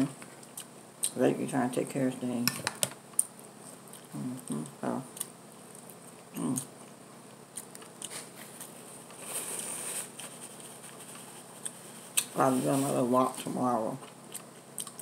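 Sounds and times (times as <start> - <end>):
chewing and lip smacking: 3.2 - 8.8, 14.0 - 15.0
person murmuring: 4.1 - 5.1, 6.4 - 6.7
paper napkin rustling: 8.1 - 13.1.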